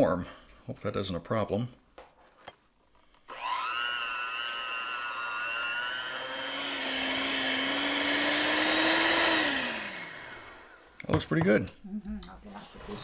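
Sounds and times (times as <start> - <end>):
electric hand mixer whining: 3.2 - 11.0.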